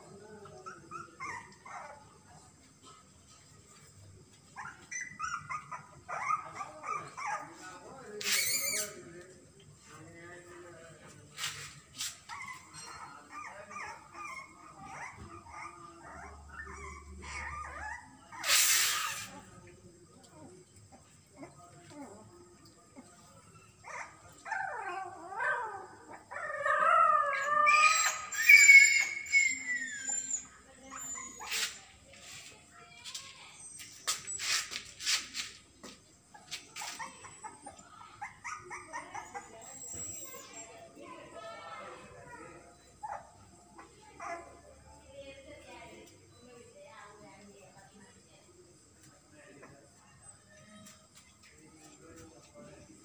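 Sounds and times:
puppies whimpering and yipping: 0:00.6 - 0:02.0, 0:04.6 - 0:07.6, 0:08.2 - 0:09.0, 0:12.2 - 0:19.3, 0:23.6 - 0:31.9, 0:36.4 - 0:41.0
dog whining: 0:23.8 - 0:31.8, 0:36.7 - 0:40.8.

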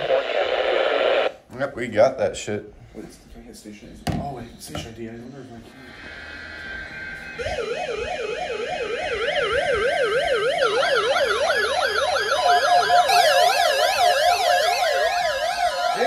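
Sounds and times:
warbling alert sirens: 0:05.7 - 0:16.0.

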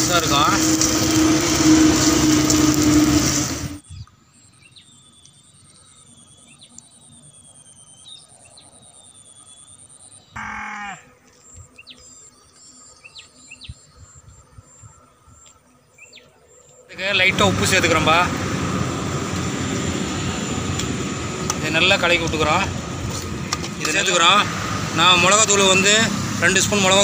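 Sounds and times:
loud frying sound: 0:00.0 - 0:03.8
high insect drone: 0:00.0 - 0:27.0
bird chirps: 0:03.8 - 0:10.5
animal call: 0:10.3 - 0:11.1.

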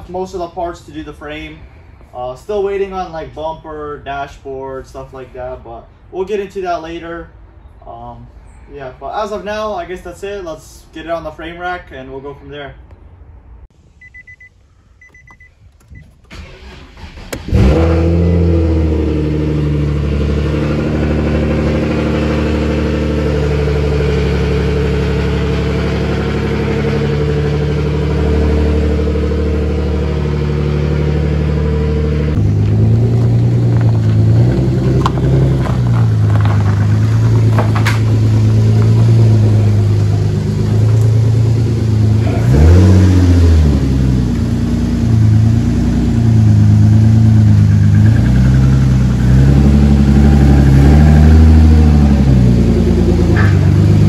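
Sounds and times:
faint beeps: 0:14.0 - 0:16.1
car engine starting and idling: 0:14.0 - 0:54.0.

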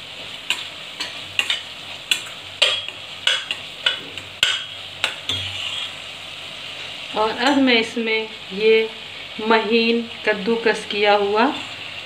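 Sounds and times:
paste sizzling in oil: 0:00.0 - 0:12.0
metal spoon scraping pot: 0:01.0 - 0:06.0.

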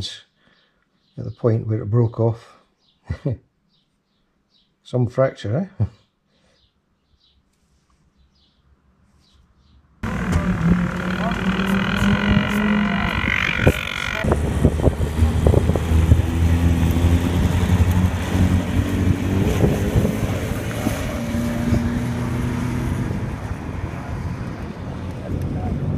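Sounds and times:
higher steady engine note: 0:10.0 - 0:19.2
race car engine running: 0:10.0 - 0:22.3.

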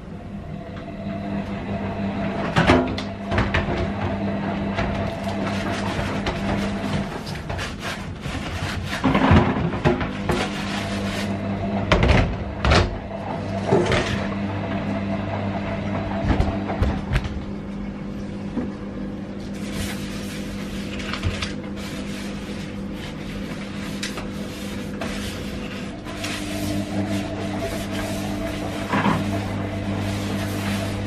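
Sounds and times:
low mechanical hum: 0:00.0 - 0:31.0
clatter in a metal sink: 0:02.4 - 0:13.0, 0:19.5 - 0:31.0
scrubbing and rubbing: 0:04.6 - 0:11.6, 0:19.4 - 0:31.0.

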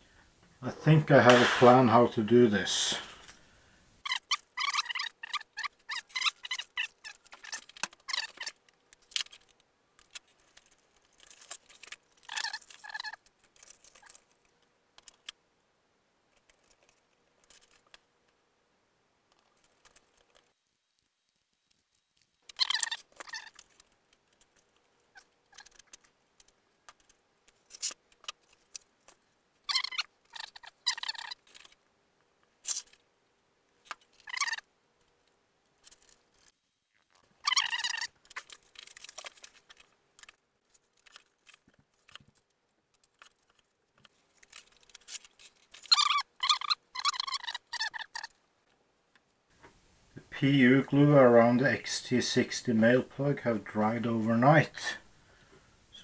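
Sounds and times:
faint steady hum: 0:00.0 - 0:56.0
squeaky glue bottle squeezing: 0:04.0 - 0:14.3, 0:22.4 - 0:28.9, 0:29.6 - 0:31.8, 0:32.6 - 0:33.0, 0:33.8 - 0:34.7, 0:37.1 - 0:39.8, 0:44.5 - 0:48.4.

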